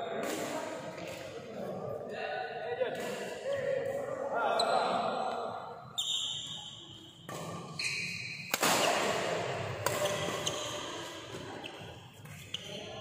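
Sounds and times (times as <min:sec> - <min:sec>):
shoes squeaking on floor: 0:06.0 - 0:08.5, 0:09.9 - 0:13.0
rackets striking shuttlecock: 0:07.2 - 0:12.6.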